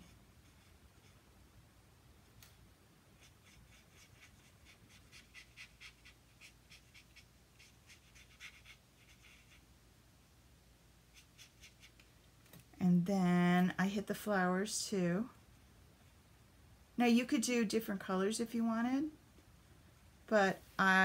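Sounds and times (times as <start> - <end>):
marker strokes on cardstock: 3.2 - 9.7, 11.1 - 12.0.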